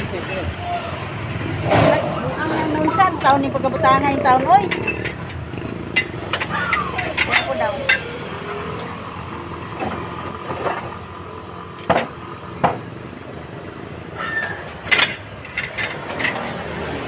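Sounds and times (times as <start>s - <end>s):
scrap metal knocks and clinks: 4.7s - 8.2s, 14.8s - 16.7s.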